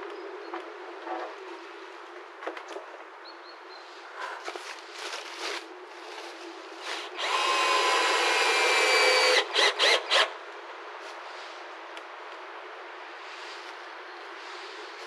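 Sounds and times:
power drill running: 7.2 - 10.3.

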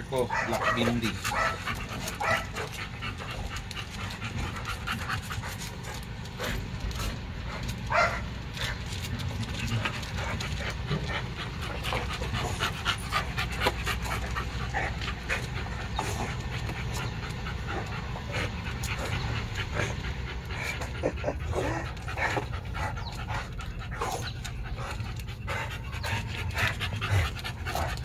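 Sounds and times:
dog panting: 0.0 - 28.0.

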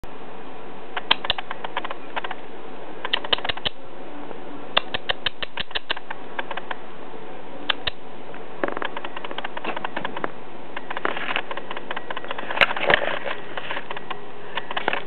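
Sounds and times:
rabbit making sharp clicks: 1.0 - 2.4, 3.0 - 3.8, 4.8 - 6.8, 7.7 - 8.0.

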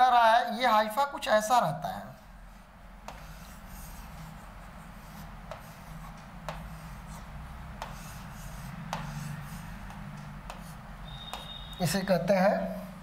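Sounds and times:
pen scratching on screen: 3.0 - 11.9
pen tip tapping on screen: 5.5 - 6.7, 7.8 - 8.1, 9.8 - 11.8.

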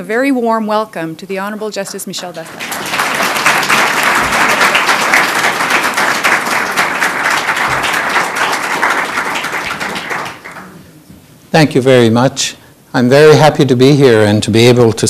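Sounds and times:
audience applauding: 2.4 - 10.8.

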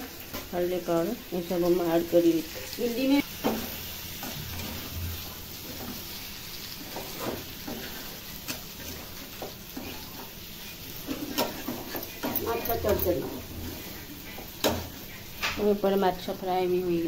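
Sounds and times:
food sizzling in a metal pan: 0.0 - 17.0
spatula scraping and knocking pan: 3.3 - 15.7.

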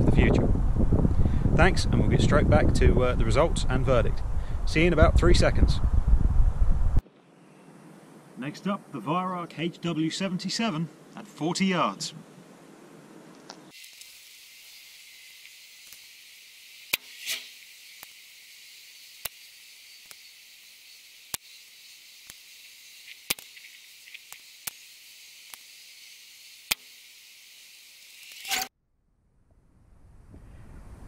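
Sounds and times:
faint steady hiss: 7.0 - 28.6
sharp clicks: 22.2 - 24.8.

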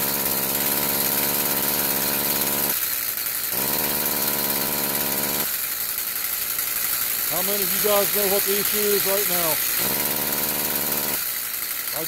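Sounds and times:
string trimmer engine bogging down: 0.0 - 2.7, 3.5 - 5.5, 7.3 - 12.0.

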